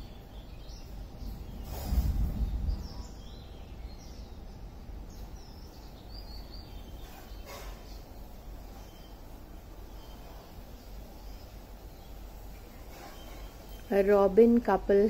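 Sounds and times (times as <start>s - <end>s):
outdoor background noise: 0.0s - 15.0s
small birds chirping: 0.0s - 15.0s
microphone rumble: 1.1s - 5.4s.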